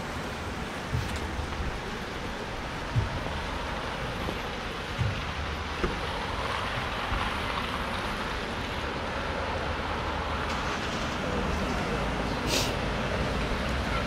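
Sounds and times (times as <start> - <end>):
passing vehicles rushing: 0.0 - 14.0
short low thumps: 0.7 - 7.3.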